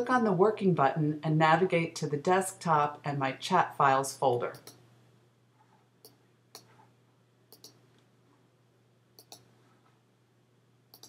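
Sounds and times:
computer mouse clicks: 0:04.5 - 0:04.8, 0:06.0 - 0:06.8, 0:07.5 - 0:08.1, 0:09.2 - 0:09.5.

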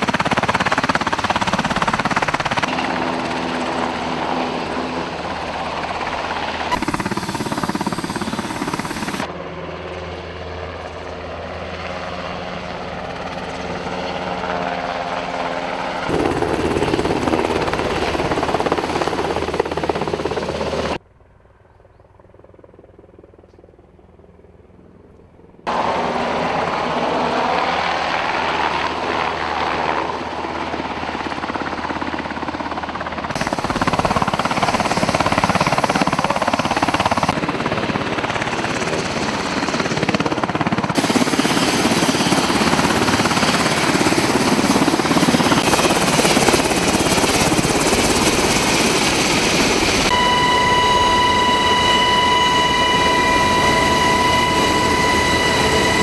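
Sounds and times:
helicopter rotor and turbine: 0:00.0 - 0:56.0
steady high whine: 0:02.5 - 0:09.3, 0:41.0 - 0:56.0.

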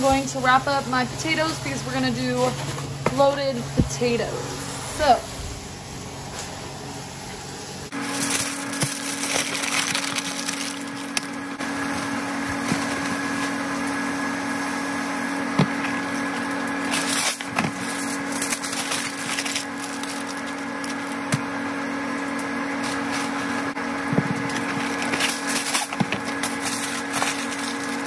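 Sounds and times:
steady low hum: 0:00.0 - 0:28.0
aluminium foil crinkling: 0:07.9 - 0:14.0, 0:15.7 - 0:21.6, 0:22.3 - 0:28.0.

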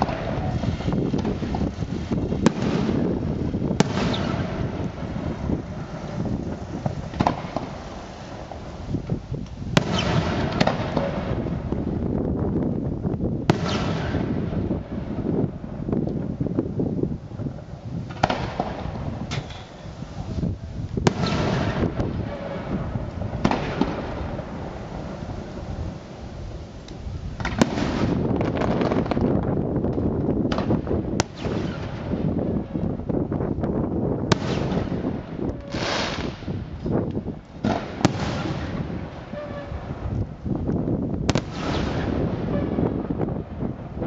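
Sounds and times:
fireworks bangs with echo: 0:00.0 - 0:12.8, 0:13.4 - 0:16.6, 0:17.3 - 0:44.0
hissing of burning stars: 0:00.0 - 0:28.5.

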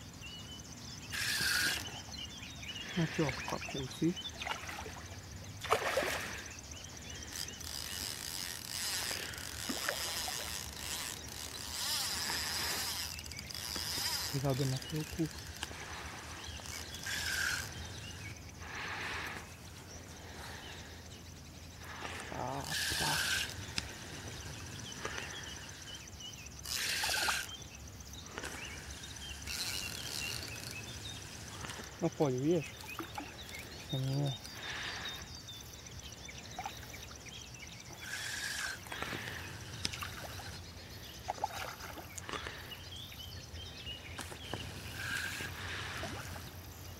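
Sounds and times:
faint bird chirps: 0:00.0 - 0:46.9
fishing reel ratcheting: 0:01.1 - 0:02.0, 0:06.2 - 0:18.4, 0:22.1 - 0:27.6, 0:28.3 - 0:34.9, 0:37.9 - 0:40.7, 0:44.2 - 0:46.4.

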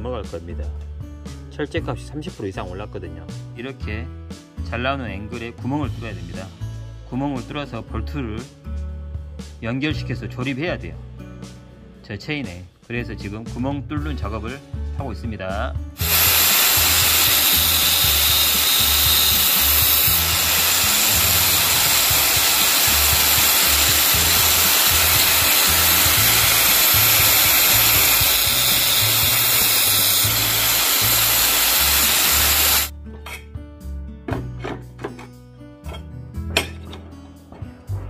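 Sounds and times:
background music with bass: 0:00.0 - 0:38.0
angle grinder sharpening drill bit: 0:16.0 - 0:32.9.

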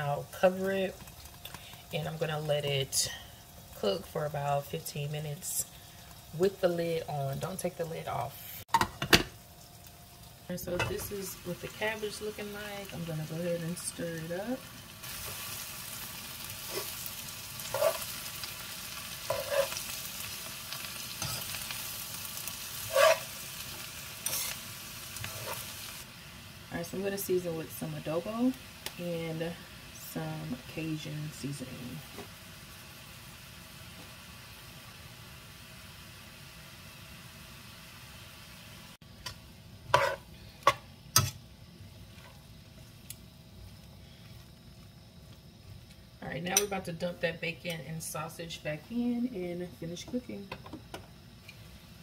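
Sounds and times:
cabbage sizzling in a frying pan: 0:00.0 - 0:52.0
steady hiss: 0:00.0 - 0:52.0
metal tongs clinking against pan: 0:46.5 - 0:46.8.

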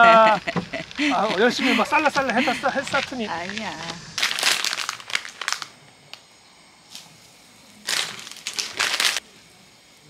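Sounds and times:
boiling water hiss: 0:00.0 - 0:10.0
plastic packet crinkling: 0:02.8 - 0:05.8, 0:07.8 - 0:09.2.

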